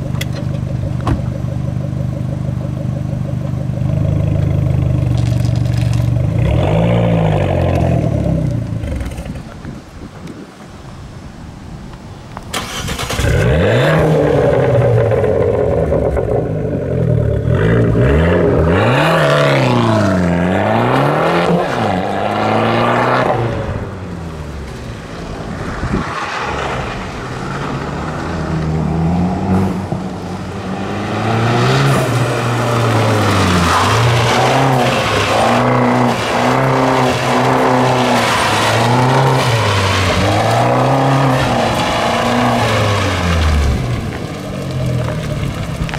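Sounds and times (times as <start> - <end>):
car engine accelerating hard: 12.6 - 24.2, 24.8 - 45.9.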